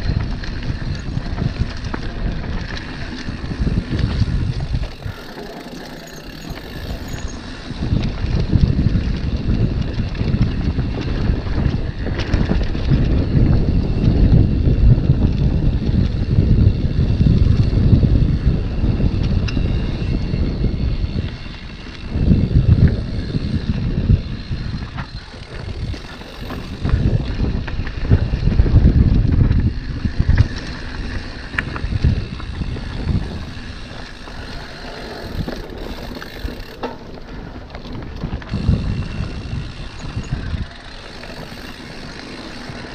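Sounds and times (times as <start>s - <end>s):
bike rattling clicks: 0.0s - 42.9s
wind buffeting microphone: 0.0s - 42.9s
tyres rumbling on dirt: 18.3s - 42.9s.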